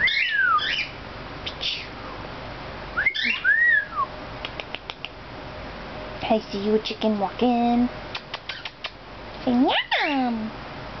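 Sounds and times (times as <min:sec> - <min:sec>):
cockatiel whistle: 0:00.0 - 0:00.9, 0:03.0 - 0:04.1
cockatiel chirping: 0:00.0 - 0:01.0, 0:03.0 - 0:03.9.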